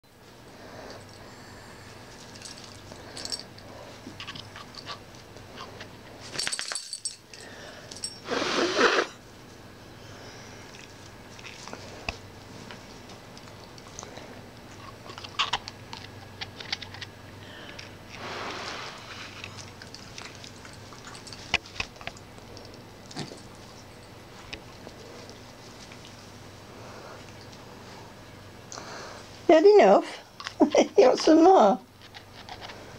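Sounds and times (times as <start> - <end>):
light clicks and jingles: 2.1 - 8.2, 19.4 - 26.2.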